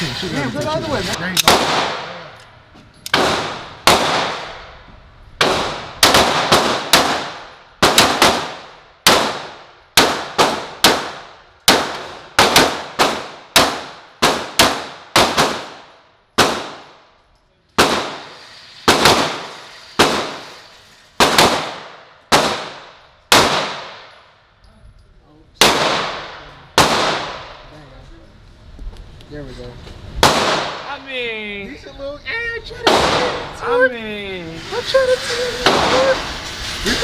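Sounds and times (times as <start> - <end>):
pistol shots: 1.4 - 2.3, 3.1 - 4.7, 5.4 - 17.0, 17.8 - 18.3, 18.9 - 20.5, 21.2 - 24.2, 25.6 - 27.6, 30.2 - 30.8, 32.9 - 33.5.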